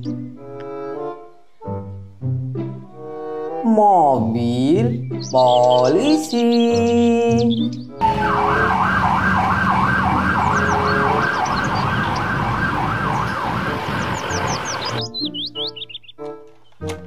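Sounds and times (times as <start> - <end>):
birds chirping: 0.0 - 1.8, 4.5 - 16.9
children's music: 0.0 - 12.0
police siren wailing: 8.0 - 15.0
traffic noise: 8.0 - 15.0.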